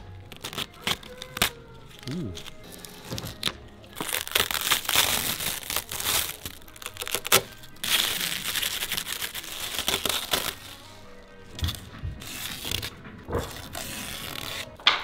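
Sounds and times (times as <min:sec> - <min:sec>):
plastic film crinkling: 0:00.0 - 0:15.0.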